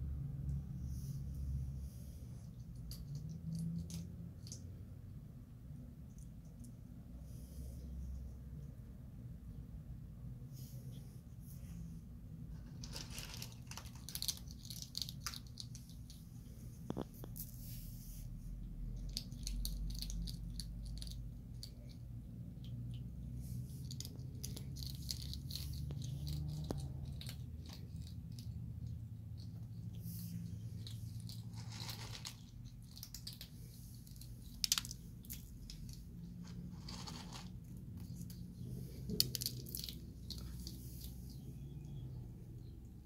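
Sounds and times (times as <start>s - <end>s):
low steady rumble: 0.0s - 43.0s
animals crunching dry food: 12.8s - 16.2s, 19.0s - 22.0s, 23.7s - 41.2s.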